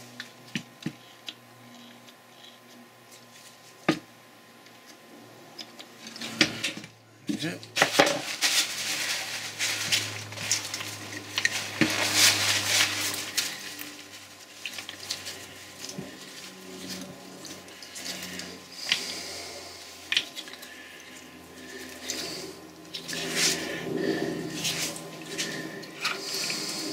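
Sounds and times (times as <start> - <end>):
hands rubbing and handling: 7.8 - 20.5.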